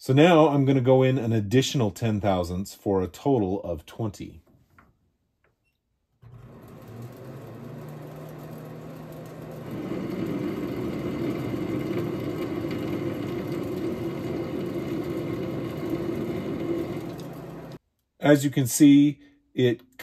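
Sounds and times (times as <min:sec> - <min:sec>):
lathe tool cutting thread: 0:06.2 - 0:17.8
metal lathe motor hum: 0:06.2 - 0:17.8.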